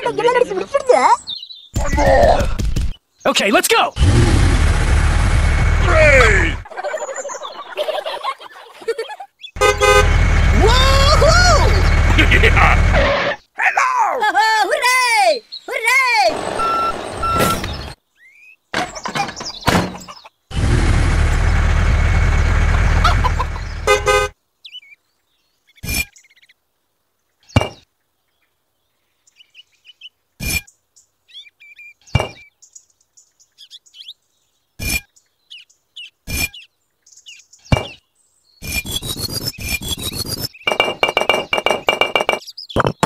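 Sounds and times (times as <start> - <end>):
vehicle engine running: 4.0 - 6.6, 9.6 - 13.0, 20.5 - 24.3
short horn toot: 9.6 - 10.2.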